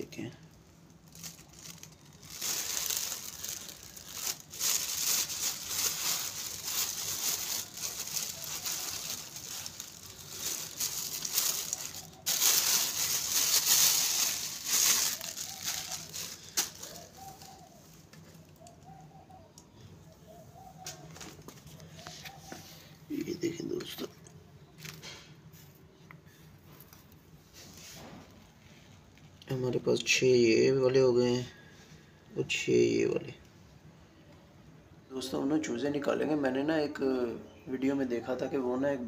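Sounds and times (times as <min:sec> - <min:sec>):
plastic bag crinkling: 0:00.4 - 0:19.0.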